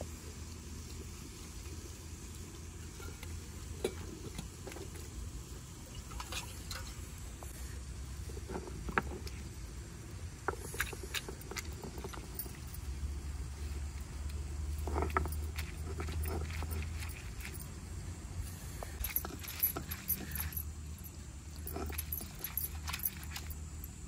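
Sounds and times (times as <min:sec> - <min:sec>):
low background rumble: 0:00.0 - 0:24.0
stone roller grinding: 0:10.4 - 0:13.0, 0:13.8 - 0:17.7, 0:18.8 - 0:20.7, 0:21.5 - 0:24.0.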